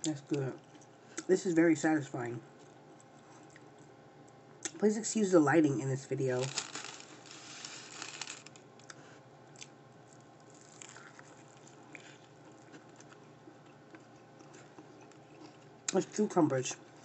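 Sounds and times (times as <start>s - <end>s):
crunching and chewing food: 0.0s - 1.3s, 2.5s - 4.8s, 6.3s - 17.0s.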